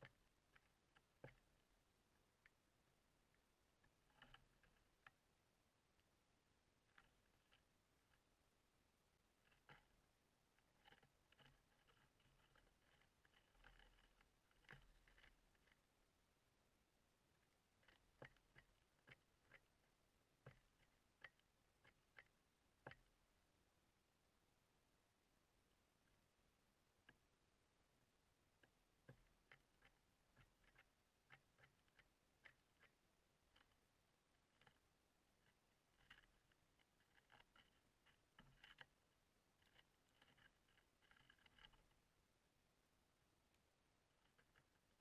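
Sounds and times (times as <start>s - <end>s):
woodpecker tapping on wood: 0.0s - 1.8s, 3.8s - 5.2s, 9.4s - 15.8s, 17.7s - 23.2s, 28.6s - 39.0s
birds pecking at wooden feeder: 0.0s - 23.7s, 25.5s - 45.0s.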